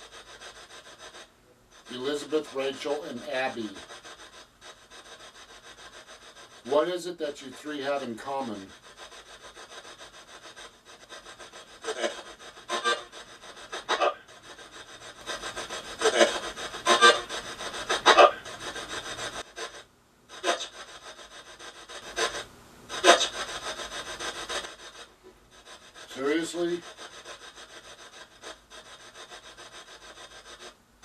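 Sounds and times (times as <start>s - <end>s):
static hiss: 9.5s - 31.0s.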